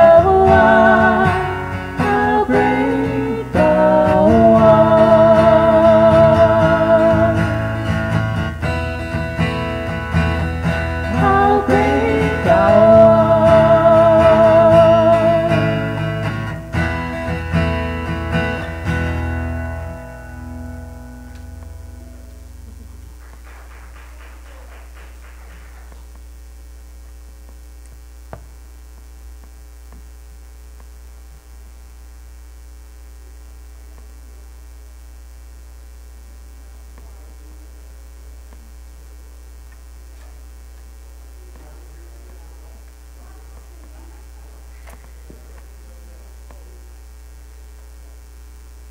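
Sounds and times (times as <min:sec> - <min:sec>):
guitar notes: 0:00.0 - 0:23.2
low electrical mains hum: 0:00.0 - 0:48.9.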